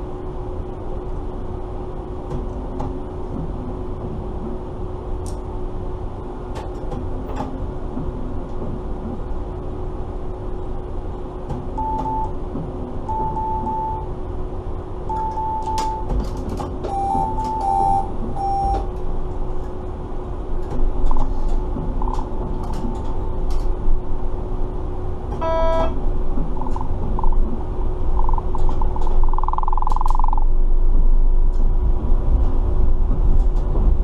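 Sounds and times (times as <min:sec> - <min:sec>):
electrical hum: 0:00.0 - 0:34.0
short electronic beeps: 0:16.9 - 0:18.8, 0:25.4 - 0:26.0
low rumble: 0:26.0 - 0:34.0.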